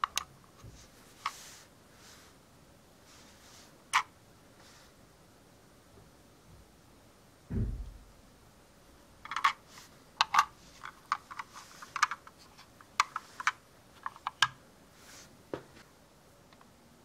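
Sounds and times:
low thump: 7.5s - 8.2s.

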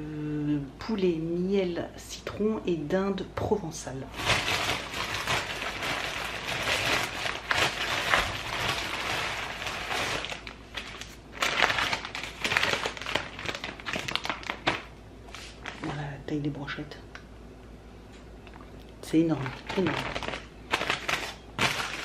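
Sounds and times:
packaging crinkling and rustling: 4.1s - 16.1s, 19.3s - 22.0s.

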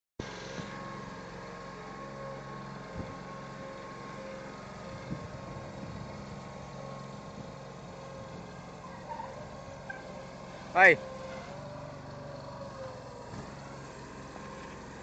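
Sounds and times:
loader engine running: 0.2s - 15.0s.

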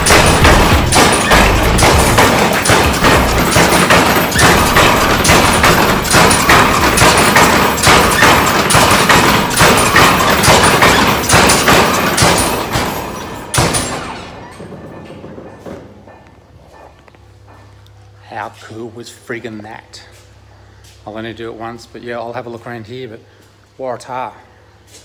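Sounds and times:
stamping mill pounding: 0.0s - 16.9s.

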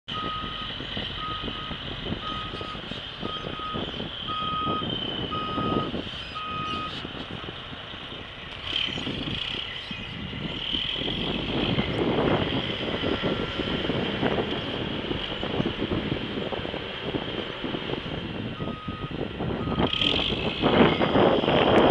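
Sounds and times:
heavy diesel machinery running: 0.1s - 21.9s
backup alarm beeping: 1.2s - 6.9s, 18.6s - 19.9s.

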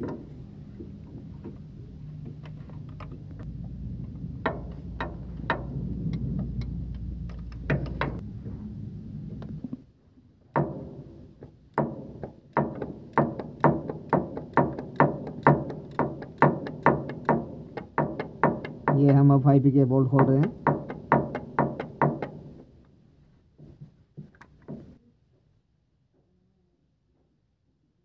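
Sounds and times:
steady low hum: 0.0s - 13.2s.

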